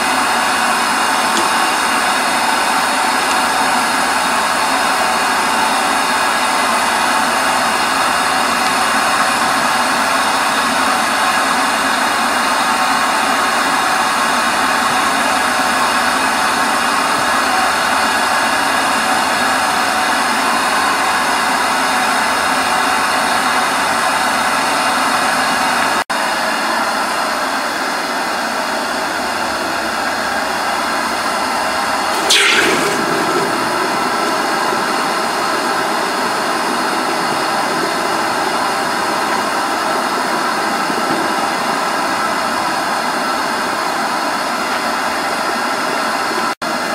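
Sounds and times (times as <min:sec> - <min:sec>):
blower machine rushing: 0:00.0 - 0:27.4, 0:28.0 - 0:44.6
short falling hiss: 0:32.2 - 0:34.4.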